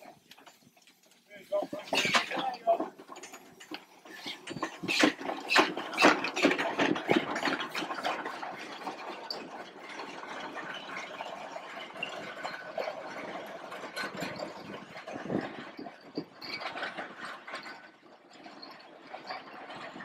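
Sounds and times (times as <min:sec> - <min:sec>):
mechanical clatter: 0:00.3 - 0:20.0.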